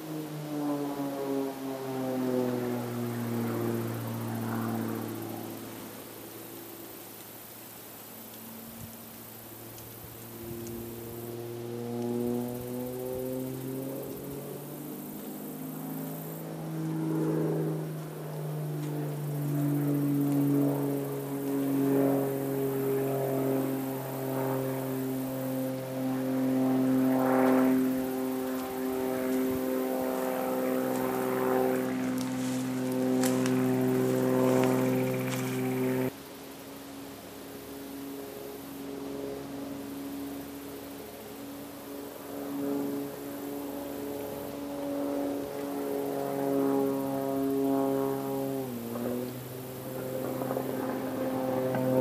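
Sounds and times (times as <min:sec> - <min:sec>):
steady motor drone: 0:00.0 - 0:52.0
footsteps through dry leaves: 0:28.3 - 0:36.1.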